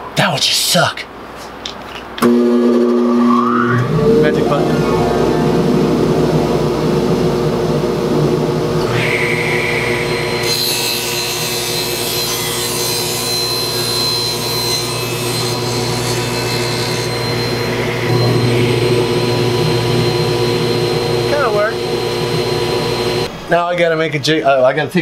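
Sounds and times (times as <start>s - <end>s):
table saw running: 2.2s - 24.0s
saw blade cutting plywood: 8.9s - 18.2s.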